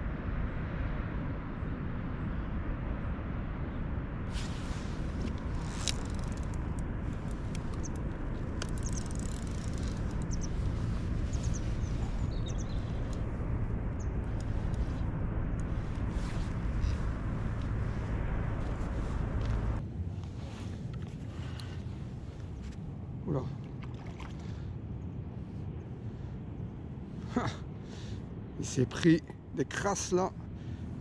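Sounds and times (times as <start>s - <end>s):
faint low hum: 0.0s - 31.0s
low background rush: 0.0s - 31.0s
small birds chirping: 7.2s - 17.2s.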